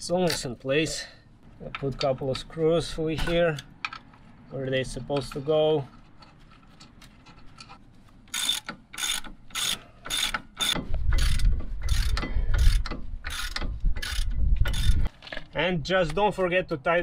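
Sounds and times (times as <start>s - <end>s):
ratchet wrench clicking: 8.3s - 15.1s.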